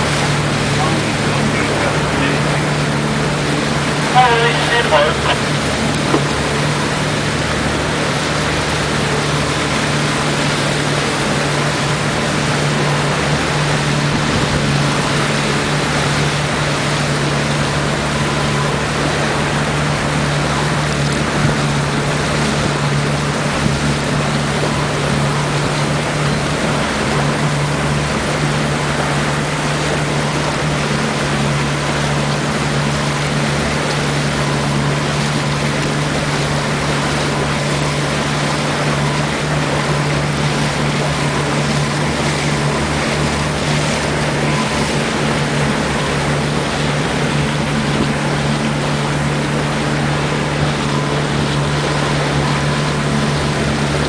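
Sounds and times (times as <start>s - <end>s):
motorboat engine humming: 0.0s - 54.0s
rushing water: 0.0s - 54.0s
wind: 0.0s - 54.0s.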